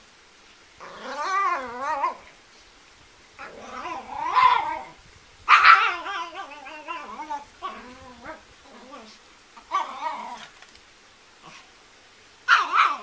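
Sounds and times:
small dog play-growling: 0.8s - 2.4s, 3.4s - 10.6s, 11.4s - 11.8s.

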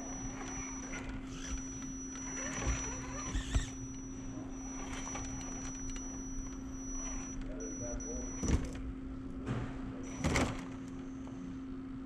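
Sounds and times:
small electric motor whining: 0.0s - 8.5s.

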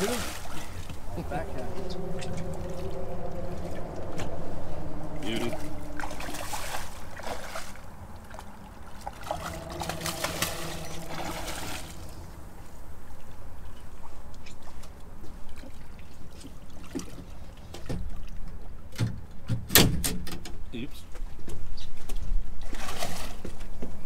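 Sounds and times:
water splashing and trickling: 0.0s - 19.0s, 21.2s - 23.9s
steady low rumble: 0.2s - 14.3s.

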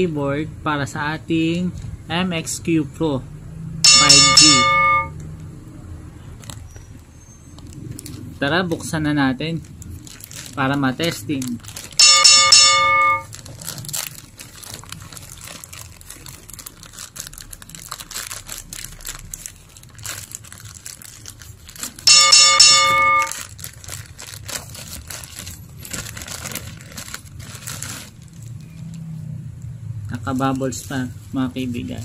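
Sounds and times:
short bell-like chime: 3.9s - 5.2s, 12.0s - 13.3s, 22.1s - 23.4s
plastic bag crinkling and tearing: 6.4s - 6.8s, 9.5s - 12.0s, 13.2s - 22.1s, 23.3s - 29.1s.

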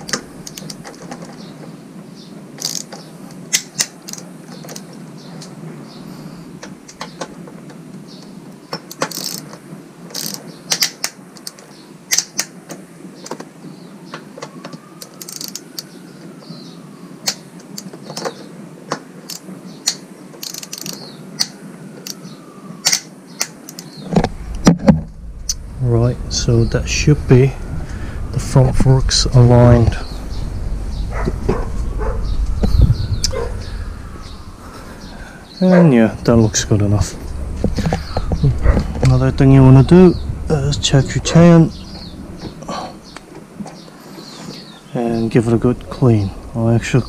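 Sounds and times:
steady low hum: 24.1s - 44.2s, 44.9s - 47.0s.

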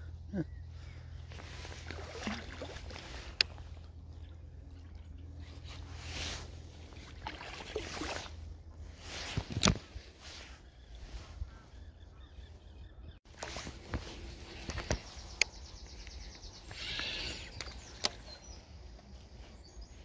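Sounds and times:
water splashing: 1.4s - 8.5s.

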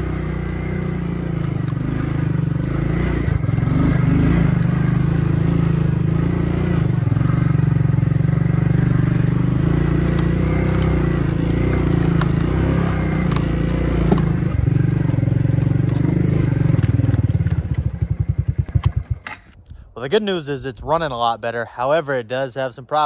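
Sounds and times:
quad bike engine running: 0.0s - 19.6s
knocks and rattles: 11.8s - 14.8s.

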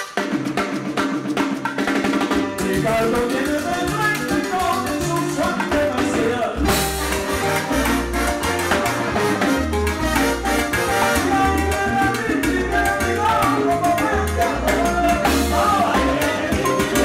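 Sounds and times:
hand drums playing: 0.0s - 17.0s
heavy bass line: 6.2s - 17.0s
horn section playing: 6.6s - 17.0s.

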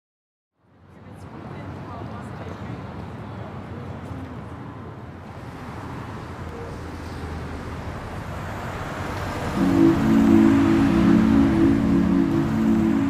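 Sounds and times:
street traffic noise: 0.6s - 13.0s
low music chord: 9.3s - 13.0s.

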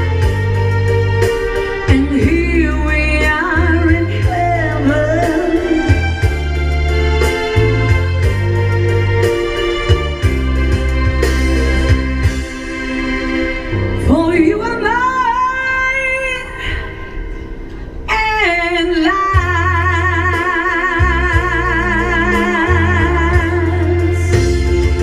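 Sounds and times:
keyboard chords: 0.0s - 16.4s, 19.3s - 25.0s
bass: 0.0s - 25.0s
woman singing: 1.9s - 6.2s, 14.0s - 16.9s, 18.1s - 25.0s.

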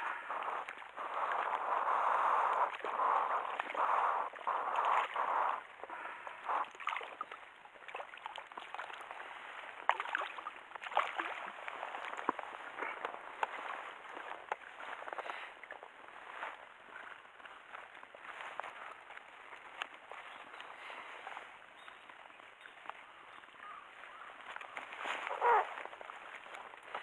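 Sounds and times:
fish splashing and thrashing in water: 0.0s - 20.5s
water sloshing: 0.0s - 21.4s.

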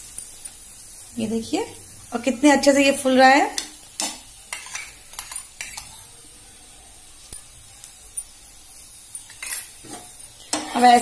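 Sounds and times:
faint oil sizzle: 0.0s - 11.0s
steel spoon clinking on pan: 9.1s - 11.0s.

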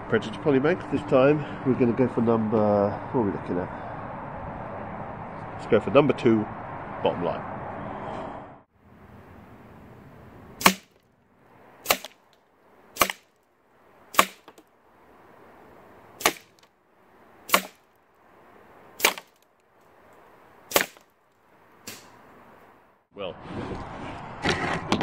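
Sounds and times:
air rifle shots: 10.6s - 11.0s, 11.8s - 12.2s, 13.0s - 13.3s, 14.1s - 14.6s, 16.2s - 16.7s, 17.5s - 17.8s, 20.7s - 21.0s.

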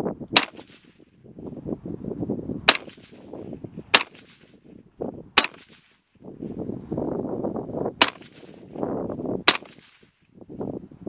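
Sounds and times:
suppressed pistol shots: 0.4s - 1.0s, 2.7s - 3.3s, 3.9s - 4.6s, 5.4s - 6.0s, 8.0s - 8.7s, 9.4s - 10.1s.

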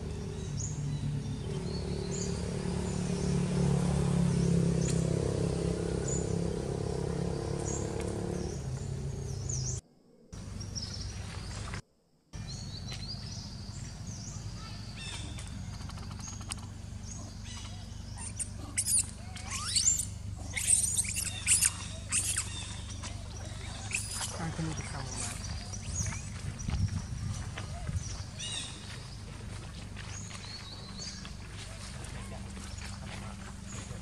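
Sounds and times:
macaques squealing: 17.3s - 26.2s.

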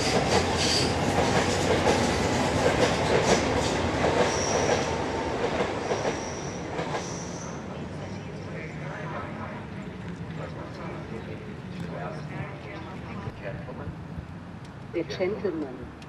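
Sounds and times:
train wheels clattering over rails: 0.0s - 7.5s.

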